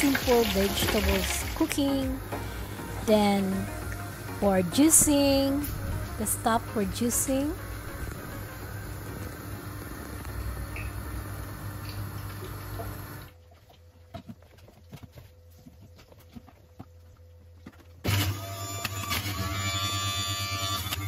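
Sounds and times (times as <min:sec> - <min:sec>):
juicer motor humming: 0:00.0 - 0:13.4, 0:18.0 - 0:21.0.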